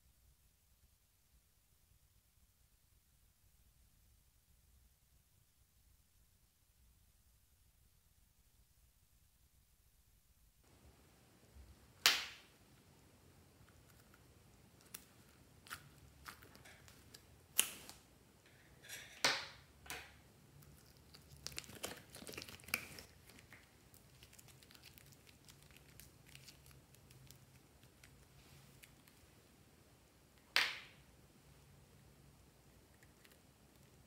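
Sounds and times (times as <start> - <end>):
crinkly clicks of clay stretching: 13.6 - 18.0, 19.5 - 29.3.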